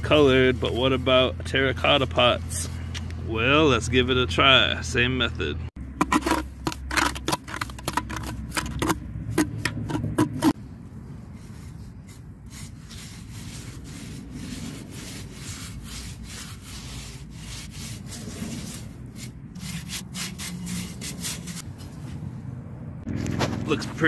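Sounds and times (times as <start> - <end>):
sponge scrubbing pot: 0.0 - 2.6, 5.9 - 10.6, 11.2 - 21.6.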